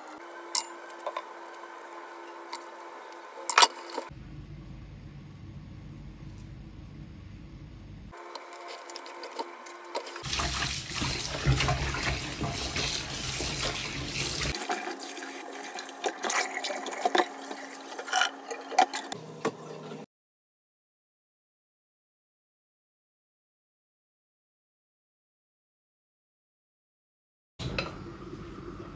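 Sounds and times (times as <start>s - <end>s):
hands rubbing vegetables: 8.2s - 14.6s
tap running into steel bowl: 10.0s - 14.5s.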